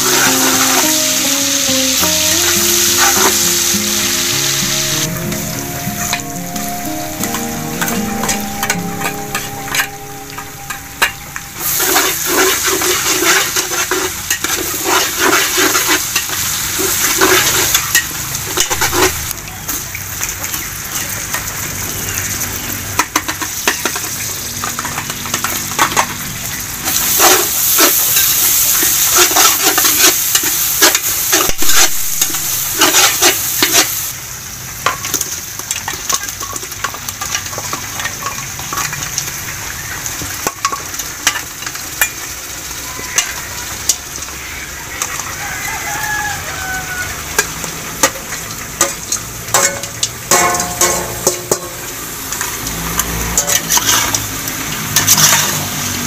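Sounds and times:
meat sizzling in a pan: 0:00.0 - 0:05.8, 0:11.5 - 0:56.0
background music: 0:00.0 - 0:12.0.

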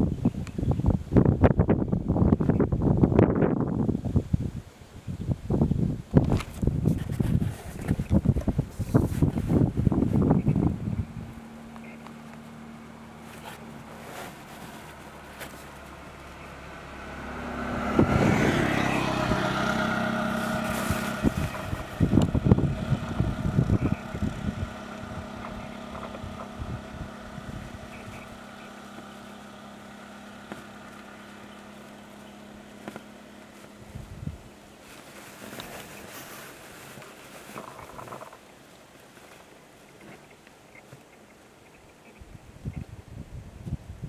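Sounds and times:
steady engine hum: 0:00.0 - 0:44.0
auto-rickshaw engine puttering: 0:06.2 - 0:41.4
vehicle passing loudly: 0:09.2 - 0:34.8.

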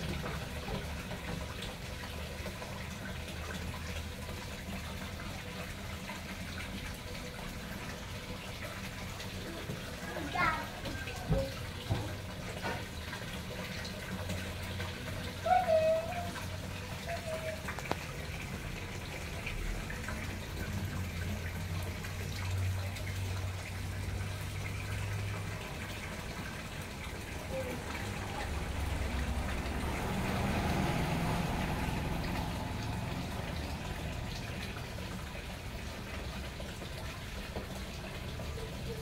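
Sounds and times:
water pouring into pond: 0:00.0 - 0:39.0.

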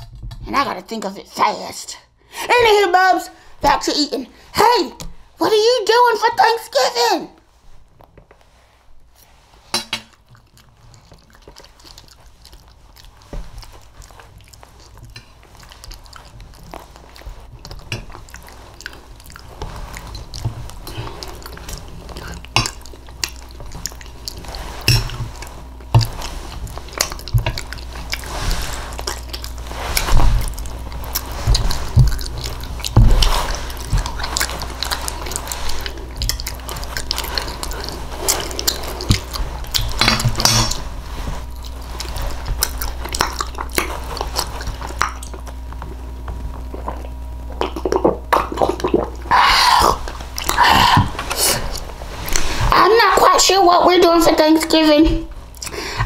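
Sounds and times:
chewing: 0:10.1 - 0:52.7, 0:55.4 - 0:56.0.

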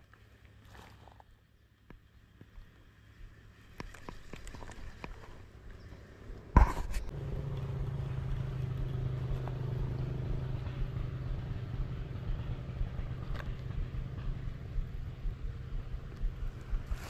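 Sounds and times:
small engine running steadily: 0:05.8 - 0:17.0.

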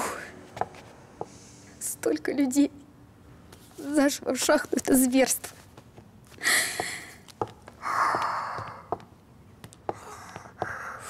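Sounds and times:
faint clicks and taps: 0:04.4 - 0:10.8
person breathing hard: 0:06.4 - 0:07.2, 0:07.8 - 0:09.0, 0:09.9 - 0:11.0.

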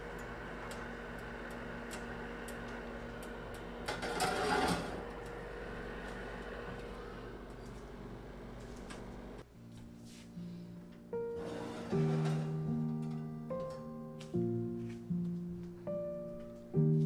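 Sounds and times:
steady hum: 0:00.0 - 0:09.4
metal pot scraping on wire rack: 0:03.9 - 0:05.0.

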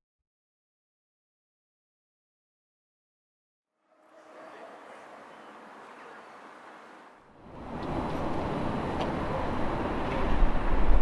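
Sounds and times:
traffic: 0:03.9 - 0:11.0
wind noise: 0:07.5 - 0:11.0.

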